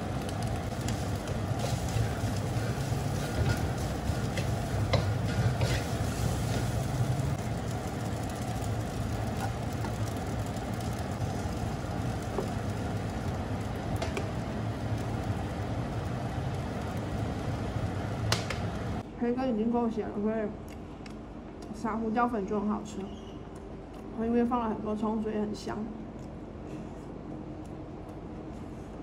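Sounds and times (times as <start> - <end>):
rice frying in a pan: 0.0 - 19.0.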